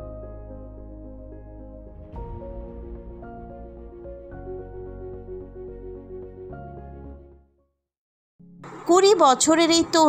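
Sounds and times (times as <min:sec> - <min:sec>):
slow melody over low bass: 0:00.0 - 0:07.5.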